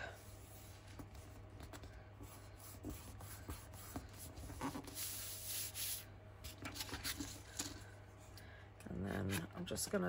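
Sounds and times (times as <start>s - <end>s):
paper rustling and rubbing: 0.3s - 7.8s
paper rubbing swish: 2.2s - 7.3s.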